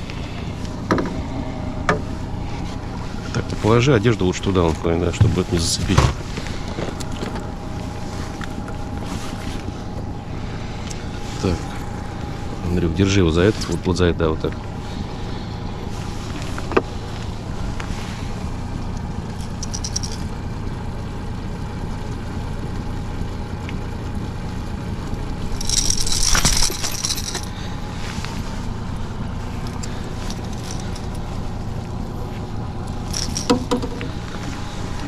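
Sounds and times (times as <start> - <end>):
outboard motor running: 0.0 - 35.0
light clinks: 19.3 - 20.4, 25.4 - 27.8, 29.6 - 31.4, 32.9 - 34.4.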